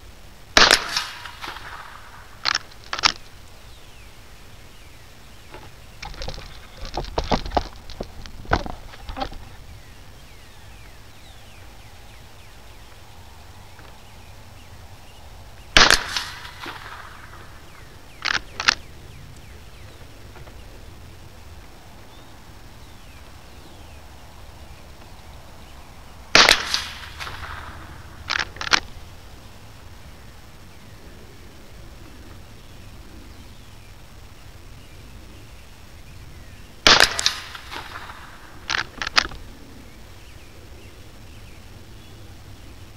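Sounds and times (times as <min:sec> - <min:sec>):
rifle shots with echo: 0:00.6 - 0:03.1, 0:15.8 - 0:18.8, 0:26.3 - 0:28.9, 0:36.8 - 0:39.1
quick sharp clicks: 0:18.2 - 0:19.4, 0:26.4 - 0:29.0.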